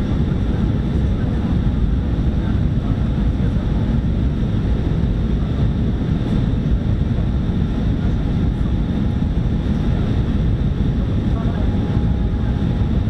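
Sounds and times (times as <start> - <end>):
aircraft cabin rumble: 0.0 - 13.0.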